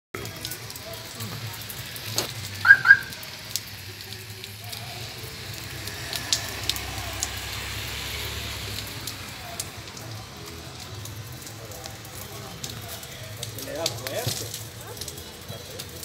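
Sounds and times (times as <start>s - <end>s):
heavy rain on wet street: 0.2s - 16.0s
car engine hum: 2.4s - 11.8s.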